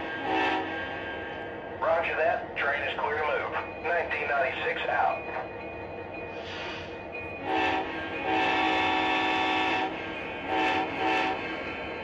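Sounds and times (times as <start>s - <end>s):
model train horn blasts: 0.2s - 0.7s, 7.4s - 11.5s
model train running rumble: 7.4s - 12.0s.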